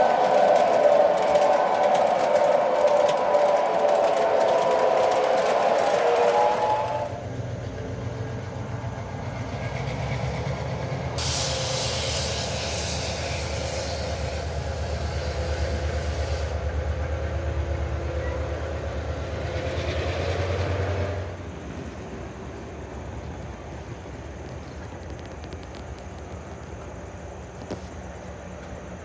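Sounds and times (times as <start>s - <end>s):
wheels clattering: 0.0s - 7.2s
train rumbling: 0.0s - 29.0s
hiss: 11.2s - 16.7s.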